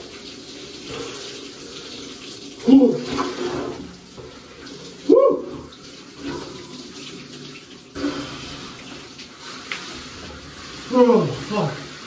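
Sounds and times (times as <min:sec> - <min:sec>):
shower water rushing: 0:00.0 - 0:12.0
man crying out: 0:05.1 - 0:05.6.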